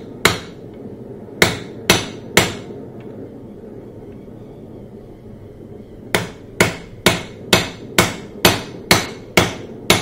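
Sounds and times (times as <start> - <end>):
steady low hum: 0.0 - 10.0
hammer striking metal: 6.1 - 10.0.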